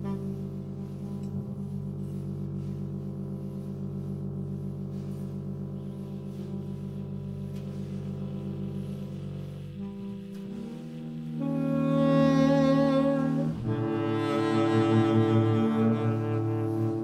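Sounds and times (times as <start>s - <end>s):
pulsing low ringing drone: 0.0s - 17.0s
saxophone: 0.0s - 17.0s.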